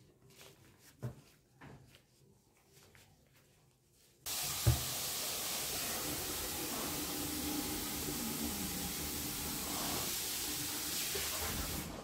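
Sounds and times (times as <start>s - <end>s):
steady hiss: 4.3s - 12.0s.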